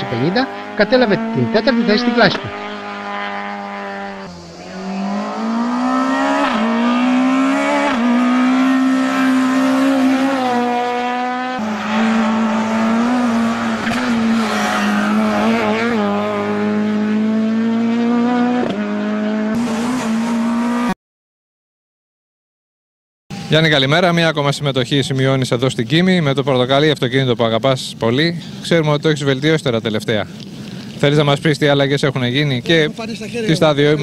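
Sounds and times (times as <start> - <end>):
rally car engine at high revs: 0.0 - 21.0.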